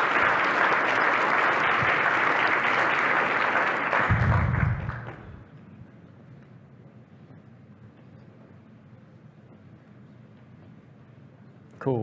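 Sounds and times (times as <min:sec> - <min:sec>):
audience applauding: 0:00.0 - 0:05.5.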